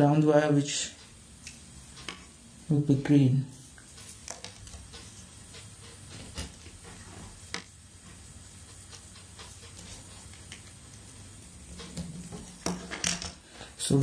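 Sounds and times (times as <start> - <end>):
wires rustling: 0.0 - 14.0.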